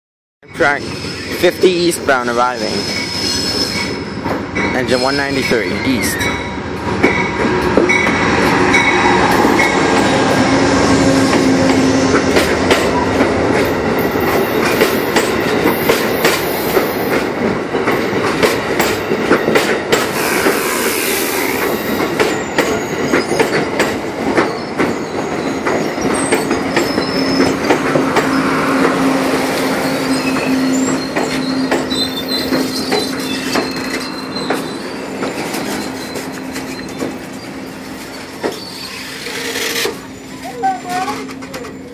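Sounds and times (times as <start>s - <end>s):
diesel locomotive passing: 0.4s - 41.9s
train brakes squealing: 0.5s - 6.6s, 20.1s - 41.9s
train wheels clicking over rail joints: 11.2s - 41.9s.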